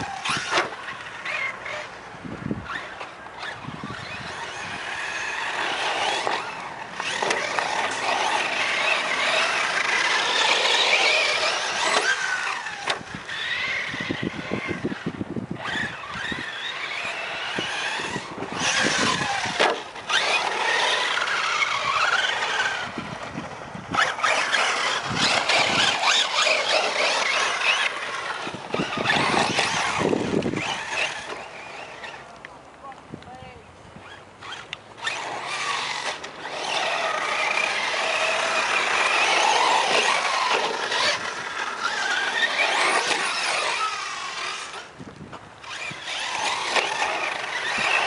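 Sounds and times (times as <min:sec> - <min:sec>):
rc truck motor whining: 0:00.0 - 0:32.5, 0:34.0 - 0:48.0
tyres churning dirt and gravel: 0:00.0 - 0:48.0.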